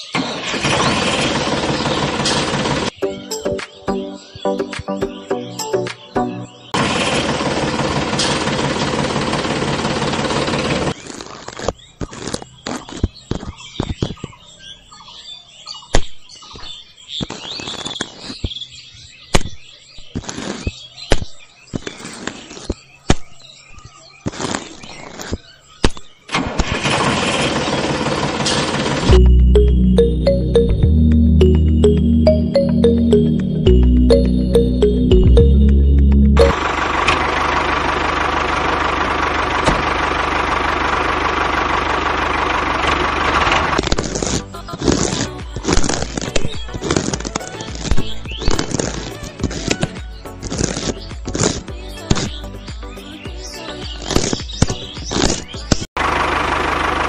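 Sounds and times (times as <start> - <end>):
toy tractor engine chugging: 0.0 - 3.0, 6.8 - 11.0, 26.4 - 29.2, 36.5 - 48.0, 56.0 - 57.0
birds chirping faintly: 2.9 - 6.8.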